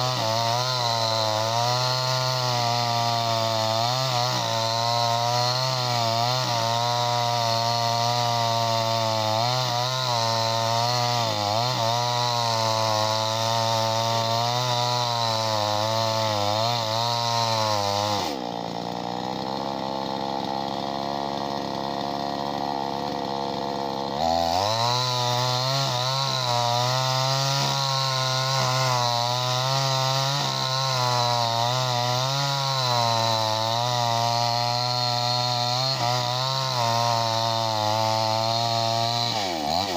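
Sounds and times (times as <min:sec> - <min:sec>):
chainsaw cutting at high revs: 0:00.0 - 0:39.9.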